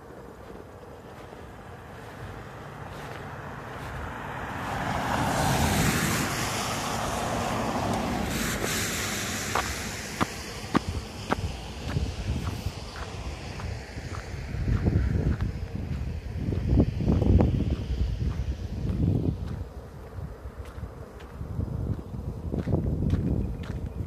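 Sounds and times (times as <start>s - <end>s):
truck tyres hissing on wet road: 1.7s - 19.3s.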